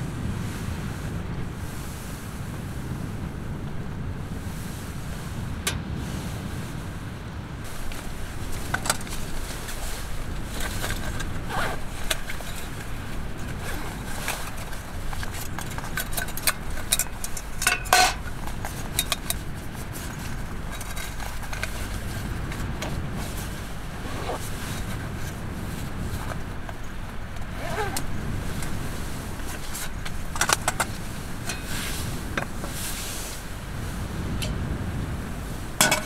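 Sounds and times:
strong wind rumbling: 0.0 - 36.0
metal camp gear clinking: 7.7 - 25.4, 26.1 - 32.8, 35.8 - 36.0
metal cup set on mesh table: 16.0 - 18.3, 35.8 - 36.0.

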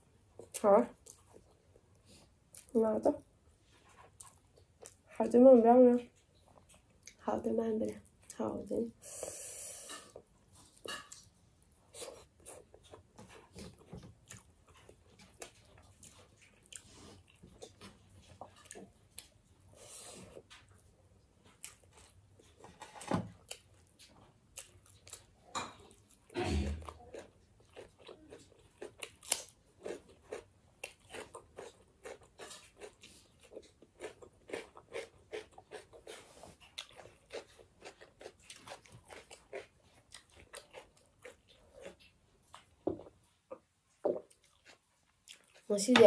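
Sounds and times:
person chewing food: 0.2 - 2.7, 3.5 - 5.1, 9.0 - 45.7
crunchy cucumber bites: 27.8 - 33.0.

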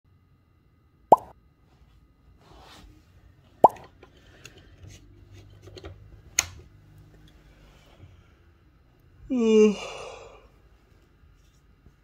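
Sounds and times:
upward-sliding bloop: 1.1 - 1.3.

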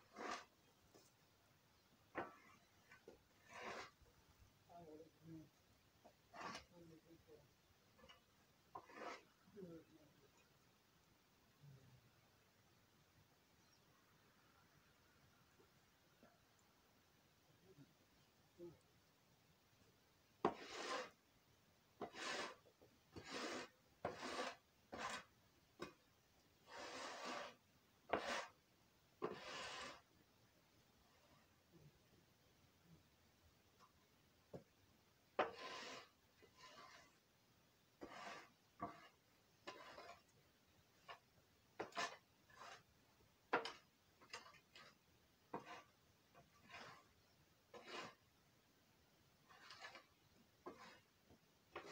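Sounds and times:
scraper rasping on concrete: 0.0 - 0.6, 2.2 - 4.0, 6.3 - 7.0, 8.7 - 9.5, 20.4 - 21.2, 22.0 - 26.0, 26.6 - 28.6, 29.2 - 30.2, 35.4 - 37.2, 38.0 - 40.4, 41.0 - 42.9, 43.5 - 48.2, 49.4 - 51.9.

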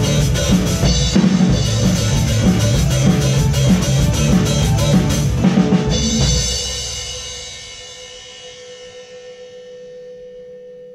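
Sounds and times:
steady tone: 0.0 - 7.8
drum kit playing: 0.0 - 9.6.

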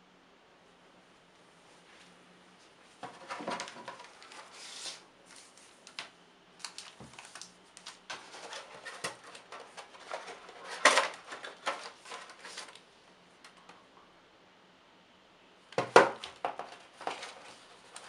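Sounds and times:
plastic crinkling: 3.1 - 12.9.

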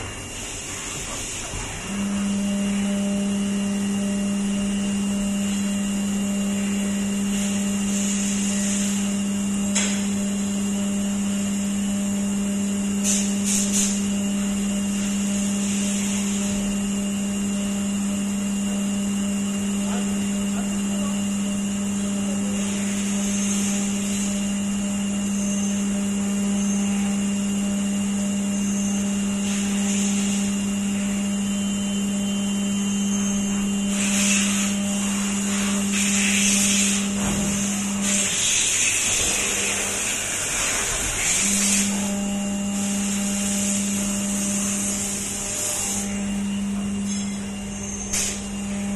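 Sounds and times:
coolant hiss: 0.0 - 11.3, 12.7 - 16.7, 29.0 - 31.2, 33.0 - 46.5, 47.1 - 48.8
milling machine spindle hum: 0.0 - 48.9.

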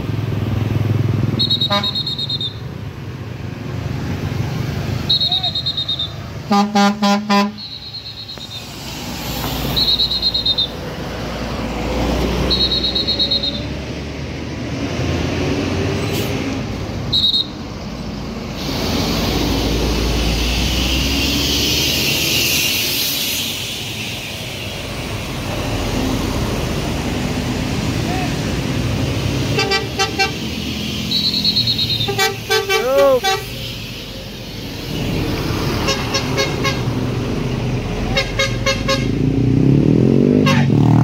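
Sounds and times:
coach buses driving past: 0.0 - 41.0
shrill warbling horn toots: 1.4 - 2.7, 5.0 - 8.9, 9.6 - 10.9, 12.4 - 13.8, 29.5 - 34.4, 40.4 - 40.8.

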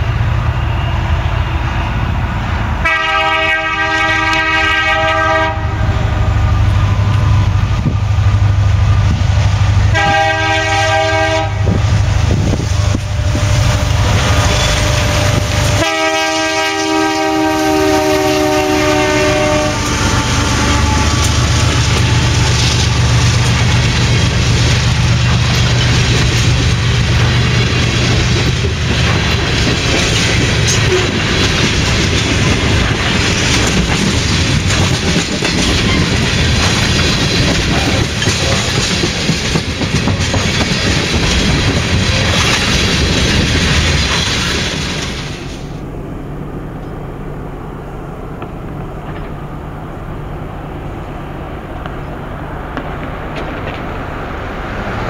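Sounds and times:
locomotive engines droning: 0.0 - 55.0
train wheels rumbling on rails: 0.0 - 55.0
train air horn blasts: 2.8 - 6.7, 9.9 - 11.9, 12.7 - 21.6.

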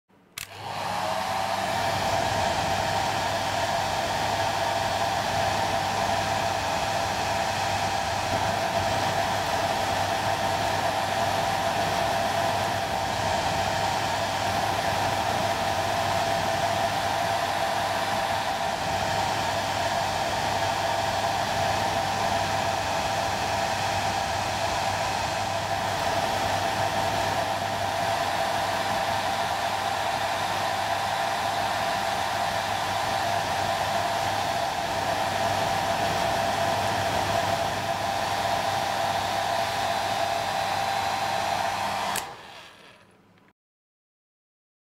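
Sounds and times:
hair dryer blowing: 0.4 - 43.2.

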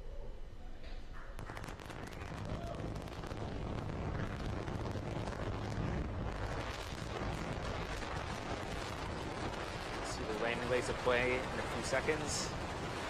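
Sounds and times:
rocket engine rumbling: 1.3 - 13.0.

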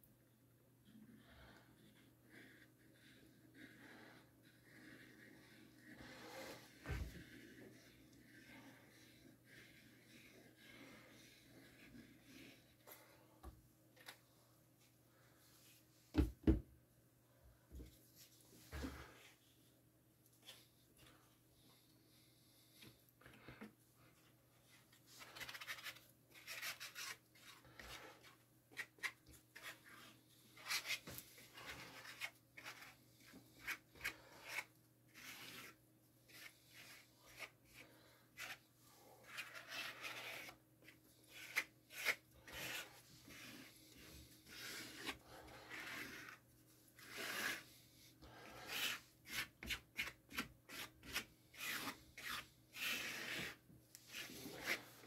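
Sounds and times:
spreader scraping glue on wood: 41.2 - 46.4, 47.0 - 55.0.

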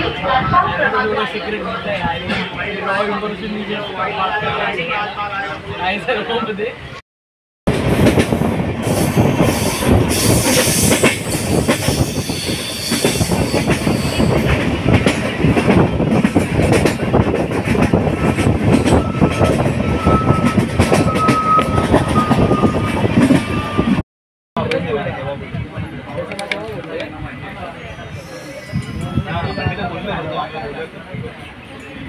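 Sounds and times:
train wheels rattling: 7.7 - 24.0.

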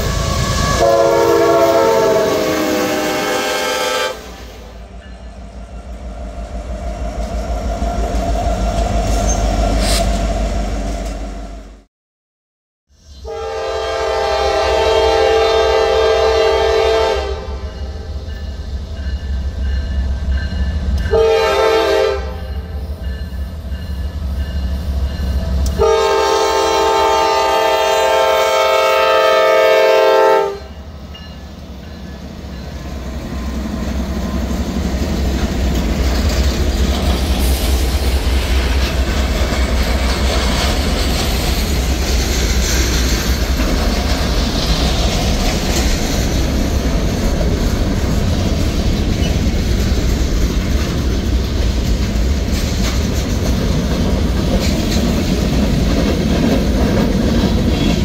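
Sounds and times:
locomotive air horn blasts: 0.0 - 4.8, 13.2 - 18.0, 21.1 - 22.8, 25.7 - 30.8
diesel locomotives rumbling: 0.0 - 11.9, 13.0 - 58.0.

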